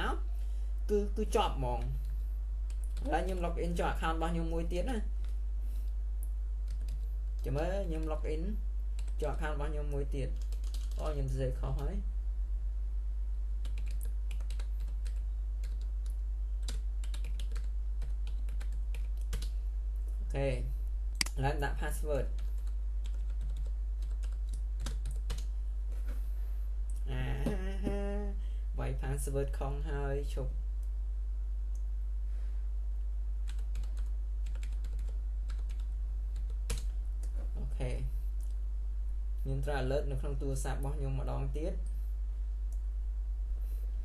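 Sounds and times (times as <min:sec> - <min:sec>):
steady low hum: 0:00.0 - 0:44.0
keyboard typing: 0:06.6 - 0:08.1, 0:10.3 - 0:11.0, 0:13.6 - 0:19.5, 0:22.4 - 0:25.5, 0:33.4 - 0:37.4.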